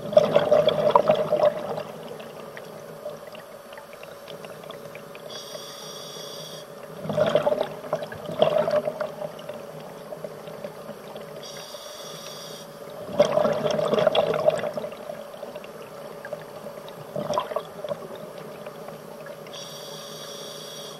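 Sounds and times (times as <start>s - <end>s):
exhaled bubbles underwater: 0.0s - 5.4s, 6.7s - 11.6s, 12.8s - 19.6s
steady hum: 0.0s - 20.9s
regulator inhalation hiss: 5.3s - 6.8s, 11.4s - 12.8s, 19.5s - 20.9s.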